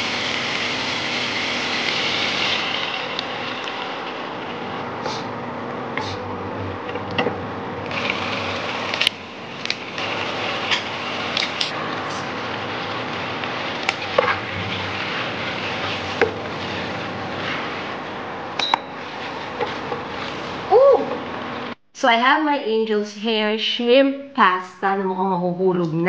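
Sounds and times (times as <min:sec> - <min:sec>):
cooking hiss: 0:00.0 - 0:06.3, 0:07.8 - 0:21.8
spatula scraping and knocking pan: 0:13.8 - 0:17.8, 0:19.0 - 0:20.4.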